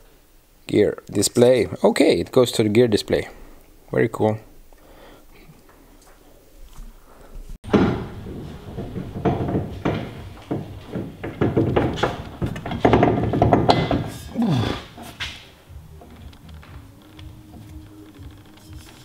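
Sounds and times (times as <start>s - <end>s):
metal tools clunking: 7.6s - 18.8s.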